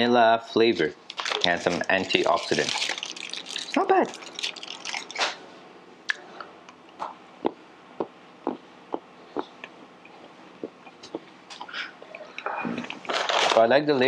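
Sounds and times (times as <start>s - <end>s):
foil wrapper crinkling: 1.1s - 5.4s, 13.0s - 13.7s
person chewing crunchy chocolate: 1.1s - 5.4s.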